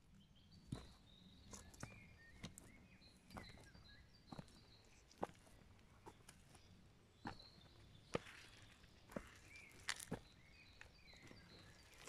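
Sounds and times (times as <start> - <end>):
boot footsteps in wet mud: 8.0 - 12.0.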